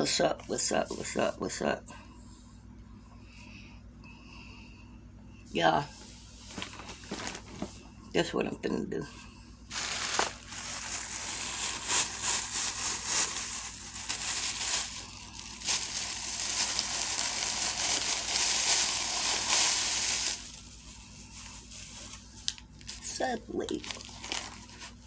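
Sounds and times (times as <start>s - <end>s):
food wrapping crinkling: 6.5s - 7.7s, 9.7s - 25.0s.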